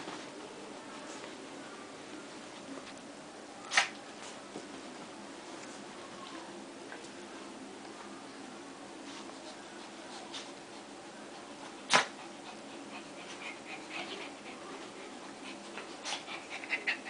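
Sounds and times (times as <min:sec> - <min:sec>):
dogs scuffling and play-fighting: 0:00.0 - 0:01.6, 0:03.7 - 0:07.2, 0:09.0 - 0:17.0
sharp loud snap: 0:03.7 - 0:04.0, 0:11.9 - 0:12.1.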